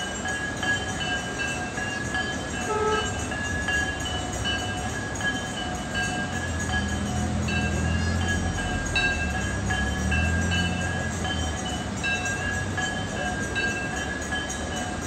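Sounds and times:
murmur of large crowd: 0:00.0 - 0:15.0
temple bells ringing: 0:00.0 - 0:15.0.

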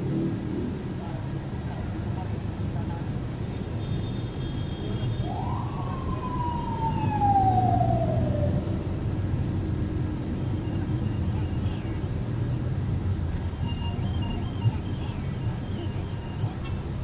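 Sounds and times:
traffic heard from inside a car: 0:00.0 - 0:17.0.

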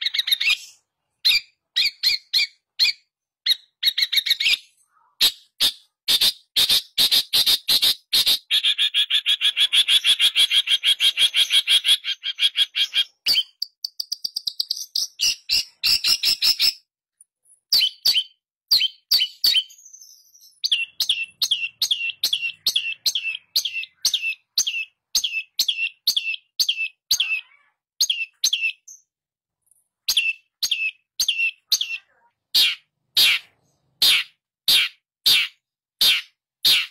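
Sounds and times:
bird chattering harsh notes: 0:30.1 - 0:36.9.

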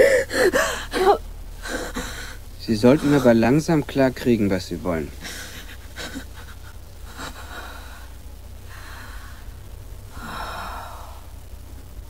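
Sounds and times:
person breathing heavily: 0:00.0 - 0:03.3, 0:05.2 - 0:09.5, 0:10.1 - 0:11.4
steady low hum: 0:00.0 - 0:12.0.

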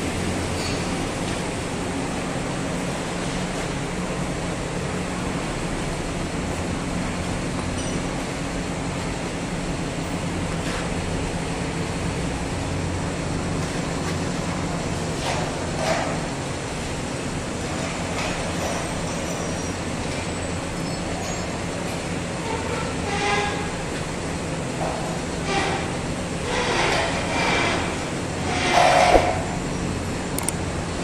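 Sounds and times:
brief knock: 0:29.1 - 0:29.4.

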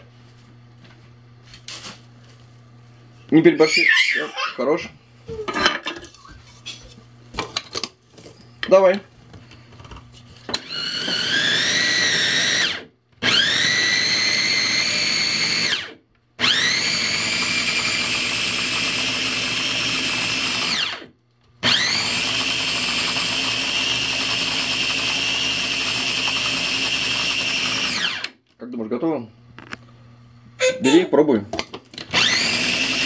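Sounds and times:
electric food chopper whine: 0:10.5 - 0:28.4, 0:32.0 - 0:33.0.

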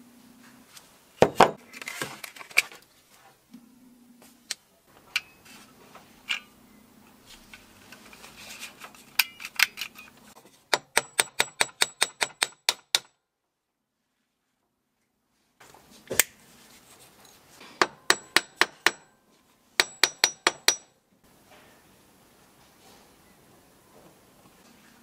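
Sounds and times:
small hammer tapping on metal: 0:10.7 - 0:13.1, 0:17.8 - 0:19.1, 0:19.8 - 0:20.9.

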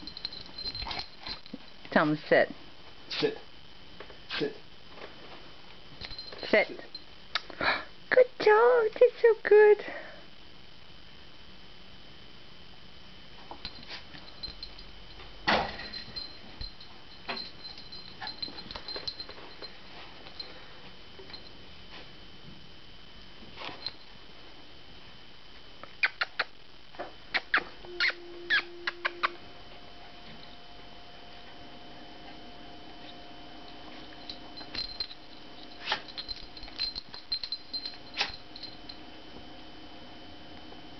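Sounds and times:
dog scrabbling and jingling: 0:00.0 - 0:01.9, 0:06.0 - 0:07.0, 0:13.6 - 0:20.6, 0:33.9 - 0:38.9
faint hum: 0:00.0 - 0:40.9.

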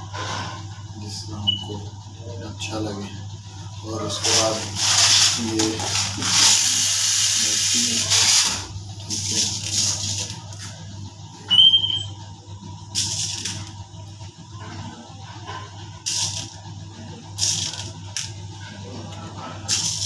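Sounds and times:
steady low hum: 0:00.0 - 0:20.0
sprinkles shaken from shaker: 0:09.1 - 0:10.5
brief high squeak: 0:11.5 - 0:12.2.

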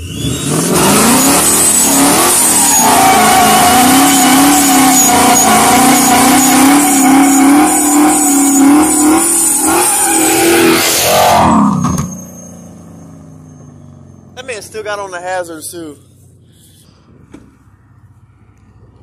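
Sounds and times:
car engine revving: 0:00.0 - 0:15.1.

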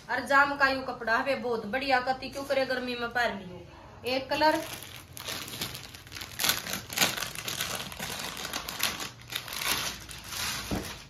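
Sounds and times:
plastic packet crinkling: 0:04.5 - 0:11.0.

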